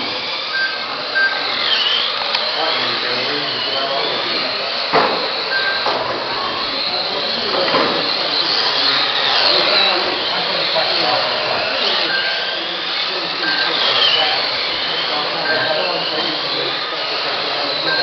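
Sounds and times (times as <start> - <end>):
electric toy car motors whining: 0.0 - 18.0
short beeps: 0.5 - 1.6, 5.5 - 6.6, 12.0 - 12.5, 13.4 - 14.4, 15.3 - 16.0, 17.8 - 18.0
sharp knocks: 4.9 - 5.3.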